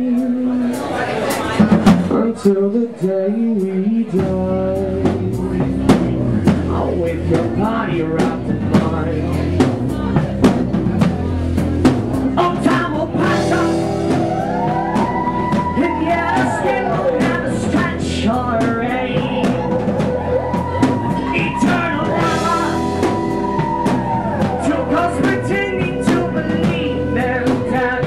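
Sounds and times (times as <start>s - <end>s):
person singing: 0.0s - 1.1s, 12.4s - 28.0s
rock band playing: 0.0s - 2.4s, 3.6s - 28.0s.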